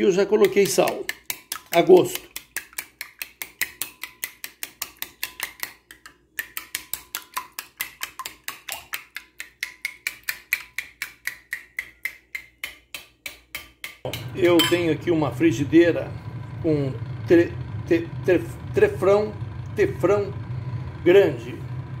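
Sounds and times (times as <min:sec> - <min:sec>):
spoon clinking glass bowl: 0:14.1 - 0:14.9.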